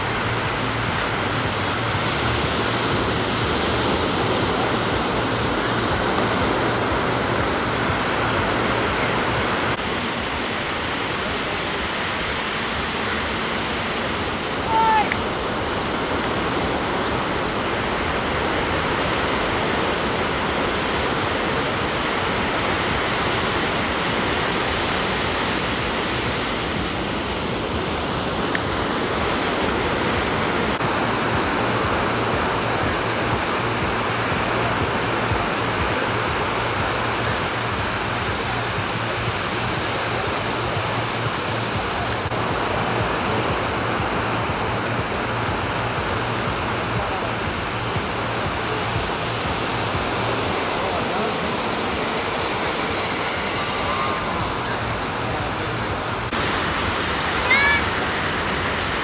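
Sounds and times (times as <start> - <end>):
ocean waves breaking on sand: 0.0 - 59.0.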